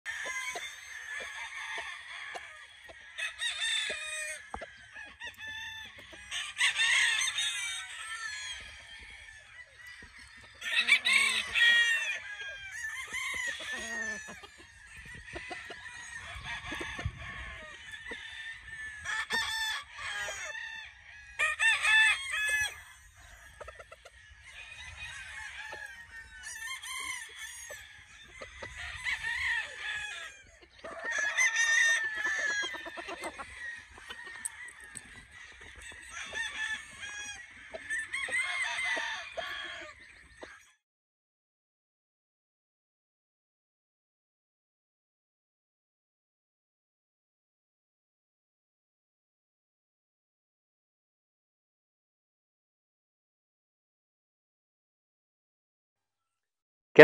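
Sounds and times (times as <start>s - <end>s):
roosters crowing: 0.1s - 40.7s.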